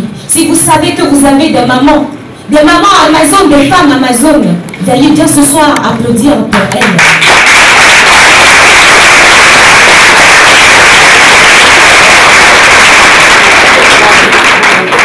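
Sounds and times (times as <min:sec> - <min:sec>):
audience applause: 0:07.1 - 0:15.0.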